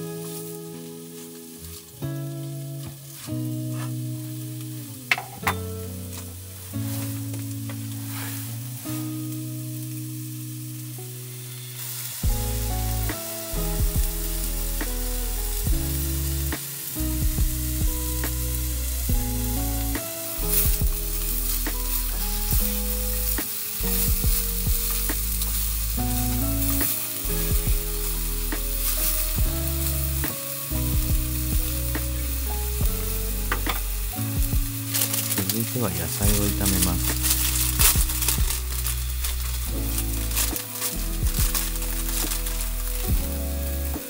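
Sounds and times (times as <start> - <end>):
background music: 0.0 - 44.0
meat sizzling in a pan: 0.0 - 44.0.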